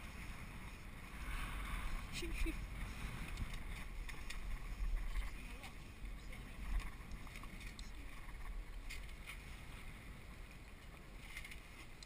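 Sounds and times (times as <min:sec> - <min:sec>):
wind buffeting microphone: 0:00.0 - 0:12.0
lines and shackles clicking: 0:02.9 - 0:12.0.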